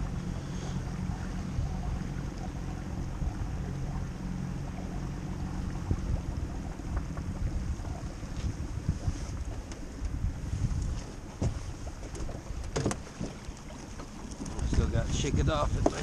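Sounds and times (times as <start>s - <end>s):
steady low rumble: 0.0s - 16.0s
wind buffeting microphone: 0.0s - 16.0s
light knocks on boat: 5.8s - 10.2s, 10.8s - 15.0s, 15.7s - 16.0s.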